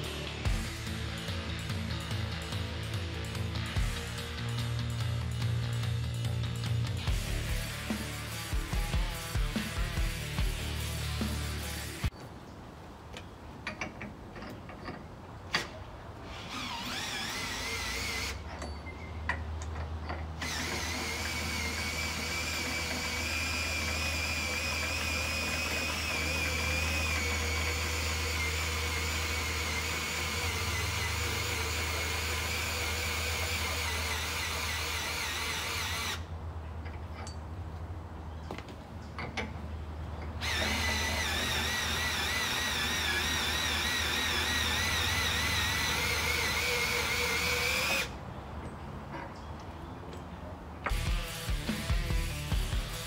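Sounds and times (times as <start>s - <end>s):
core drill motor whine: 16.3s - 18.4s, 20.4s - 36.3s, 40.4s - 48.1s.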